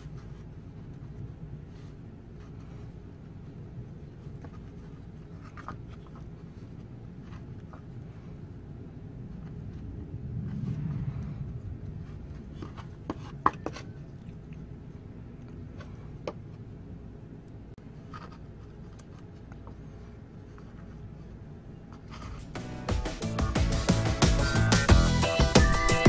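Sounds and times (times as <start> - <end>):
soft rubbing: 0.0 - 17.0
low steady hum: 0.0 - 23.0.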